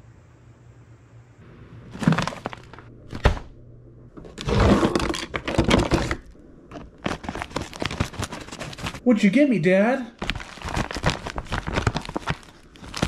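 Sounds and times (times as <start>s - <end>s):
kitchen drawer pulled open: 4.2s - 6.2s.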